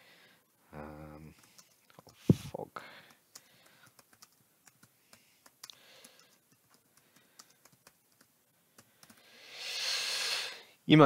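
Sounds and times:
computer keyboard typing: 1.3 - 2.3, 3.0 - 9.2.

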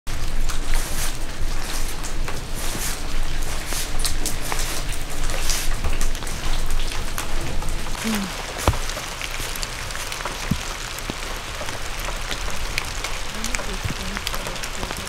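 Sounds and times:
rain falling: 0.1 - 15.0
drops ticking on surfaces: 8.2 - 9.4, 10.2 - 15.0.

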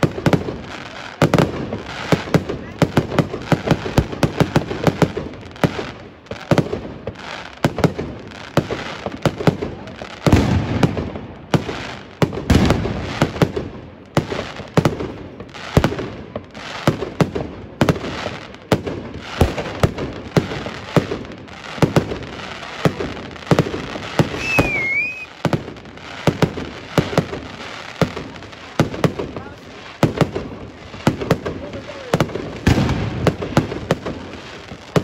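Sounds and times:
fireworks bursting with sharp bangs: 0.0 - 35.0
firework whistle: 24.2 - 25.4.

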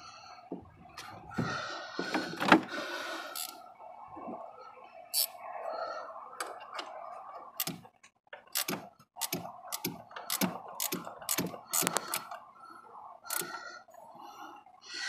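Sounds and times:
ratcheting wrench clicking: 8.5 - 12.4, 13.3 - 13.6.

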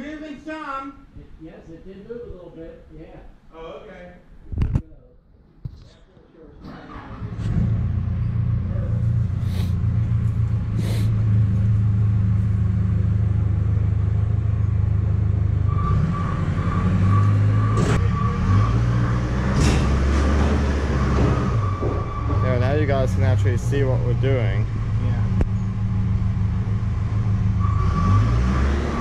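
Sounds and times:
heavy motor rumbling: 6.7 - 29.0.

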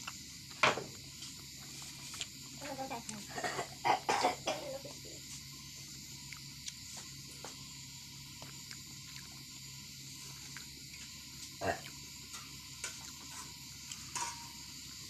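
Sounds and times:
crickets chirring: 0.0 - 15.0
chewing: 1.7 - 2.4, 6.2 - 7.0, 8.3 - 9.4, 10.2 - 12.0.

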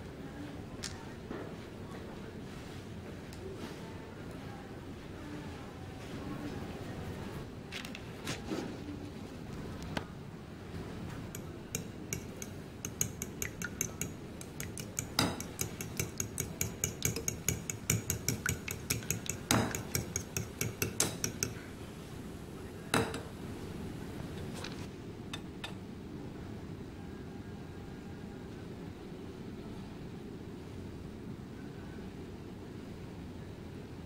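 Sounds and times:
fork knocking on bowl: 11.3 - 21.6
fork beating egg in bowl: 11.3 - 21.7.

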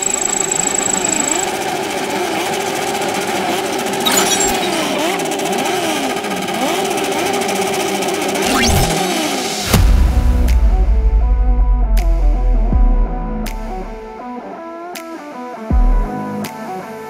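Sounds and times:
motorcycles revving: 0.0 - 9.8.

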